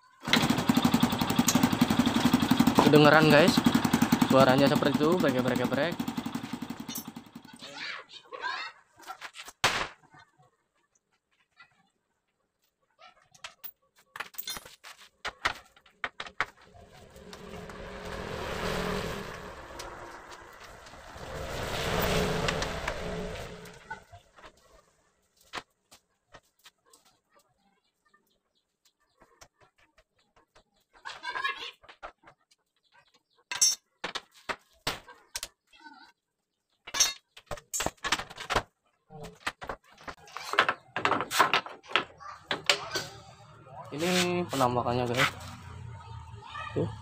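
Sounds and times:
tools and metal parts clinking: 0:13.4 - 0:14.9, 0:33.5 - 0:33.8, 0:36.9 - 0:38.1
passing vehicle: 0:16.6 - 0:24.6, 0:45.0 - 0:47.0.

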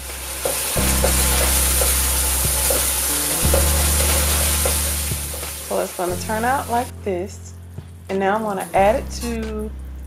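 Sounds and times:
sauce bubbling and sizzling: 0:00.0 - 0:07.0.

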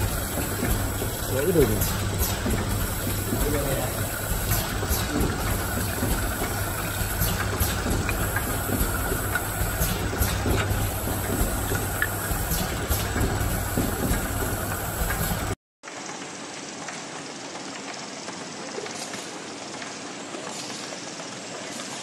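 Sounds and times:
machine hum and hiss: 0:00.0 - 0:15.6.

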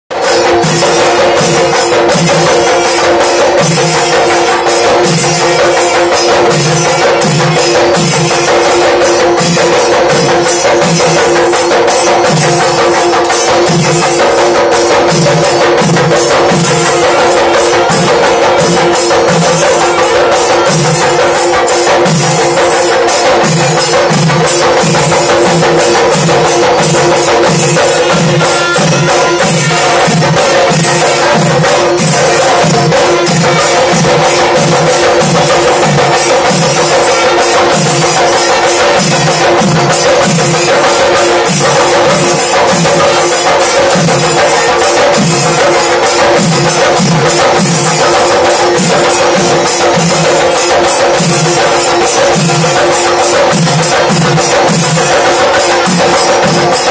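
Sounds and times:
drums beaten with sticks: 0:00.1 - 0:56.9.

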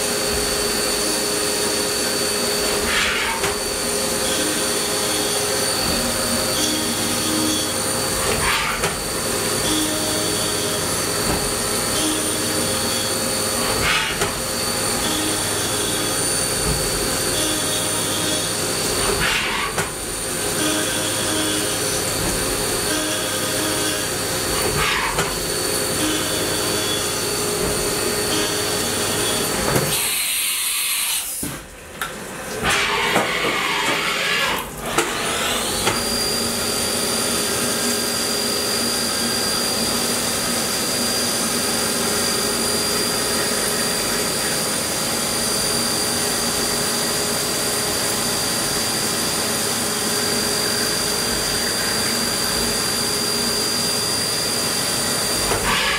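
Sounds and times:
machine spindle whine: 0:00.0 - 0:31.5, 0:32.2 - 0:55.9.

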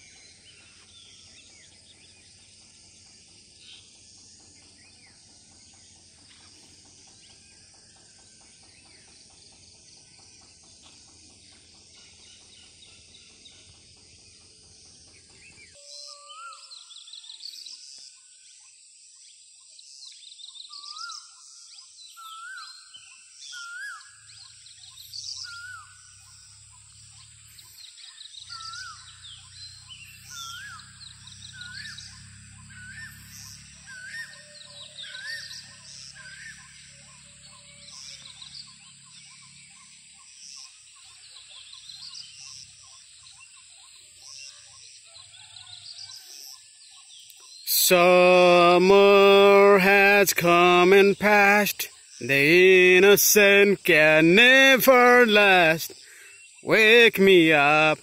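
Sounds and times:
insect trill: 0:25.3 - 0:47.6.

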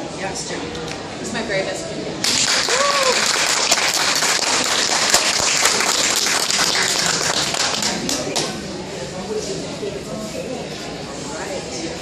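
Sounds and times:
audience applauding: 0:02.2 - 0:08.5.

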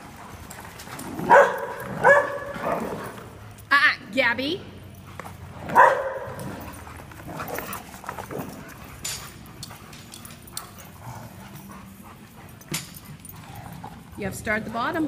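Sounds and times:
dog barking: 0:01.3 - 0:03.0, 0:05.7 - 0:06.4
paws pattering on foam mats: 0:05.0 - 0:15.0.

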